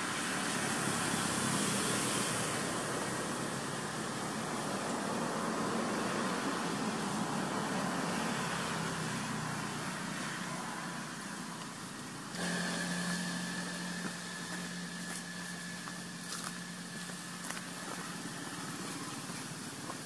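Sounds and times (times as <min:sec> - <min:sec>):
engine hum with whine: 0:00.0 - 0:20.0.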